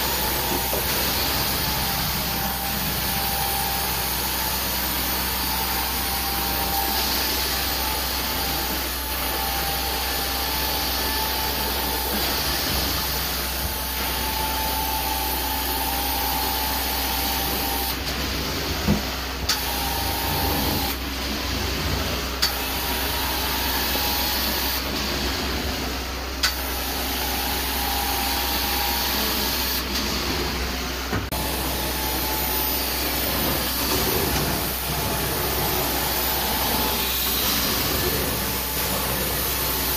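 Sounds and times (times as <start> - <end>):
carpet extraction vacuum rushing: 0.0 - 39.9.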